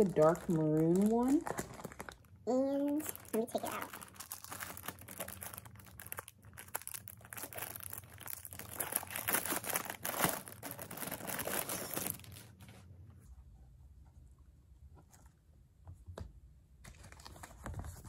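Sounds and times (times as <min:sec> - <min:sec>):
plastic wrapping crinkling and tearing: 0:00.0 - 0:12.8.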